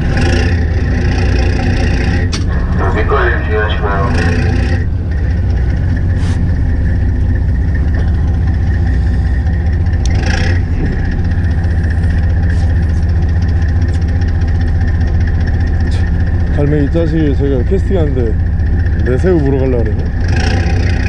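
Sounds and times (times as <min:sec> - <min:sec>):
boat engine droning: 0:00.0 - 0:21.0
thin steady whine: 0:00.5 - 0:10.1.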